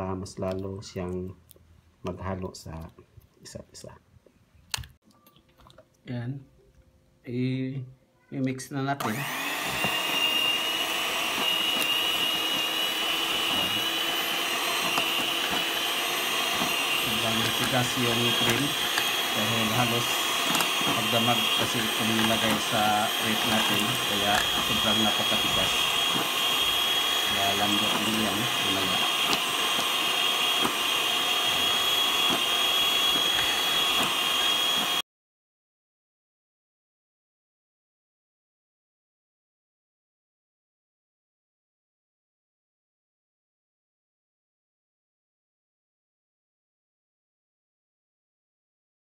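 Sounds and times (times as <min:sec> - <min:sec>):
electric mixer whining: 0:09.0 - 0:35.0.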